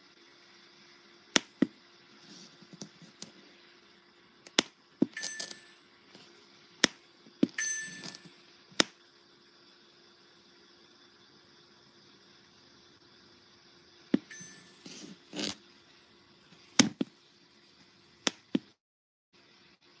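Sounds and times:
short metallic clinking ring: 5.2s - 5.8s, 7.6s - 8.4s, 14.3s - 15.1s.

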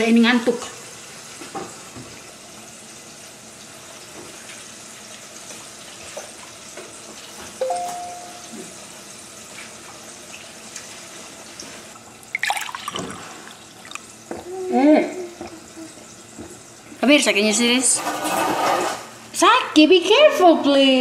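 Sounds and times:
chicken frying in oil: 0.0s - 7.6s, 8.8s - 12.3s
short tone: 7.6s - 8.7s.

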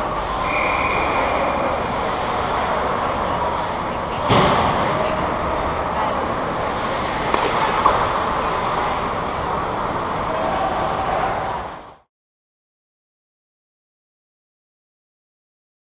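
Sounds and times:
voices calling out: 0.0s - 11.9s
skates on ice: 6.7s - 11.4s.

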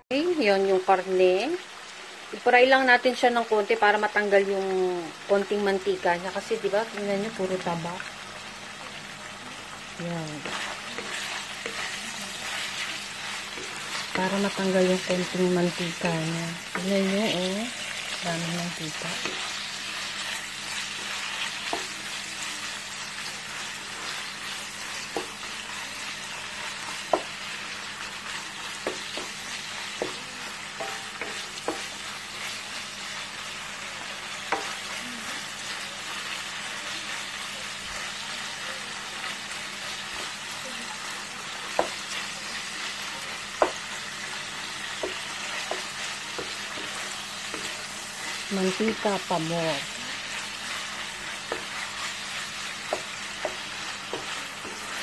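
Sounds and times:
pork sizzling in hot oil: 0.0s - 55.0s
spatula tapping pan: 20.7s - 22.0s, 24.0s - 32.4s, 41.6s - 49.3s, 51.0s - 55.0s.

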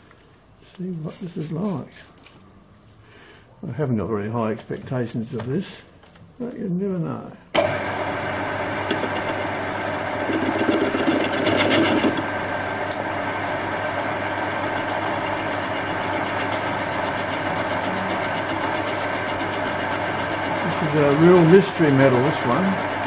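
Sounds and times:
metal lathe humming: 7.6s - 23.0s.

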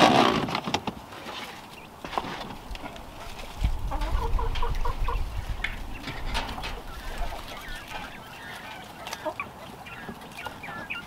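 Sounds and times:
quail chirping: 3.0s - 11.0s.

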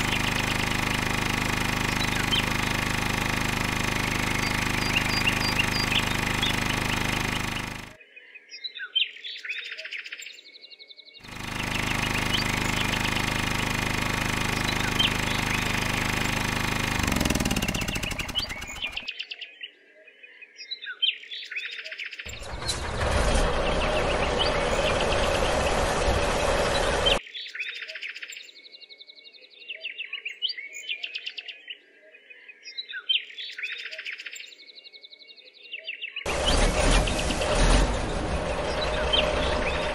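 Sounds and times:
small motor humming and rattling: 0.0s - 8.0s, 11.2s - 19.1s, 22.3s - 27.2s, 36.3s - 39.9s
birds chirping: 0.0s - 39.9s.

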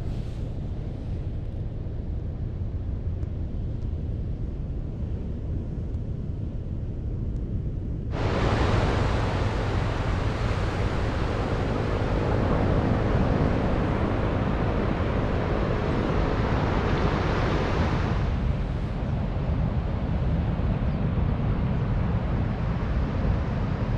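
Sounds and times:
wind buffeting the microphone: 0.0s - 23.9s
surf breaking on a beach: 8.1s - 19.7s.

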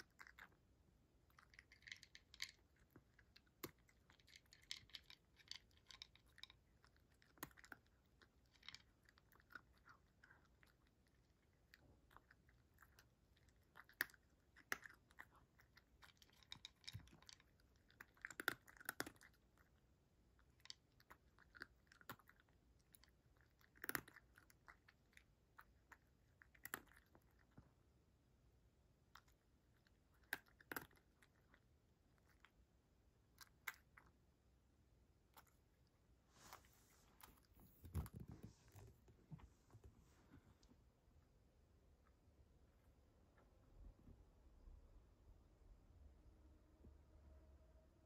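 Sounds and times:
cat crunching dry kibble: 0.0s - 27.8s, 29.0s - 34.2s, 35.2s - 39.1s.

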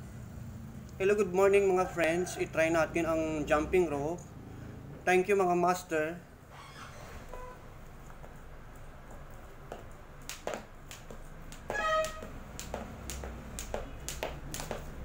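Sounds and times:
jump rope slapping floor: 9.2s - 15.0s
sneakers landing: 9.6s - 15.0s
sneaker squeak: 11.7s - 12.4s.

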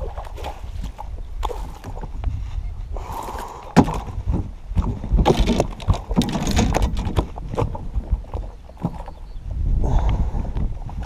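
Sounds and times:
water splashing: 0.0s - 2.2s
wind rumble on microphone: 0.0s - 11.0s
knocks and clatter on boat: 3.7s - 9.3s.

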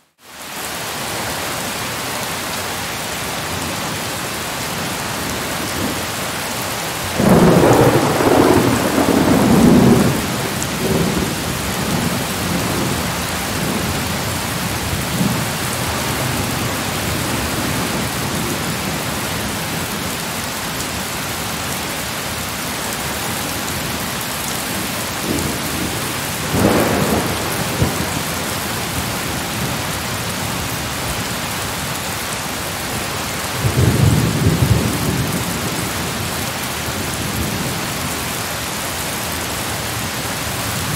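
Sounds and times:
steady rain: 0.0s - 40.9s
thunder rumbling: 7.2s - 19.8s, 24.6s - 30.6s.

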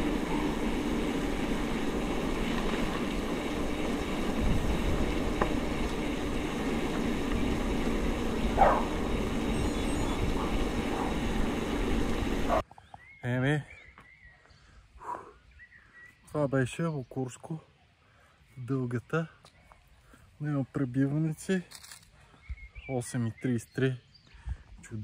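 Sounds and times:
bike rattling: 0.0s - 12.6s
rushing noise of bike ride: 0.0s - 12.7s.

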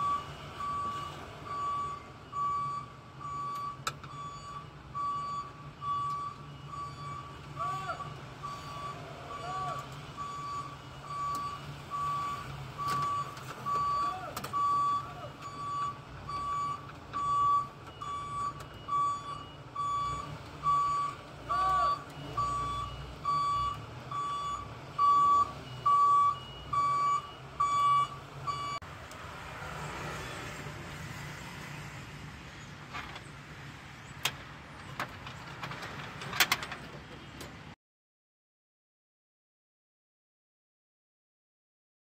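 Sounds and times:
electronic warning beeps: 0.0s - 28.8s.

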